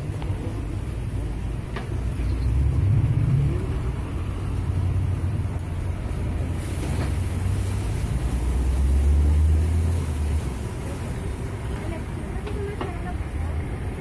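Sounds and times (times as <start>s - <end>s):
street traffic rumble: 0.0s - 14.0s
hiss on hot griddle: 6.3s - 11.9s.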